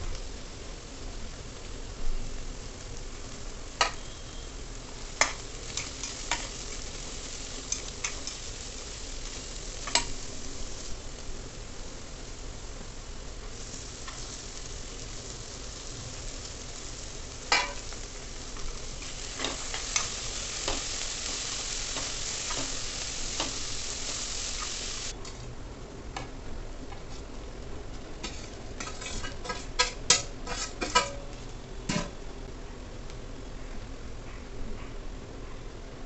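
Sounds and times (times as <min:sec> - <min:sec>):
vegetables sizzling in oil: 0:00.0 - 0:25.3, 0:27.0 - 0:32.2
spoon scraping and clinking on pan: 0:28.2 - 0:31.2.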